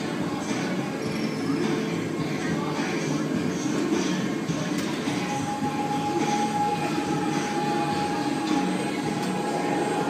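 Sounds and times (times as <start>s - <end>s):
high machine whine: 0.0s - 10.0s
thrill ride machinery rumble: 0.0s - 10.0s.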